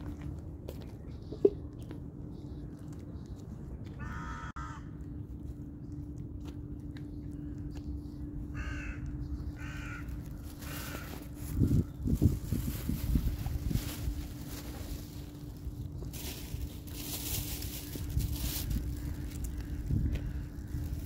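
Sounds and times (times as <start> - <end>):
steady low hum: 0.0 - 21.0
crow cawing: 4.0 - 4.9, 8.5 - 11.3.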